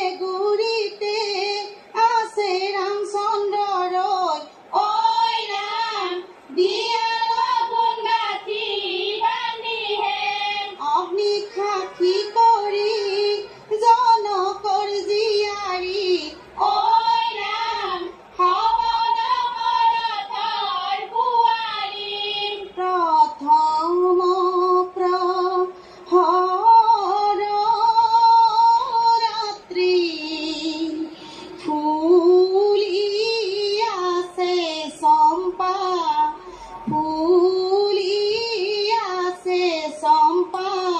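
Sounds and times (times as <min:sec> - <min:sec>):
woman singing: 0:00.0 - 0:40.9.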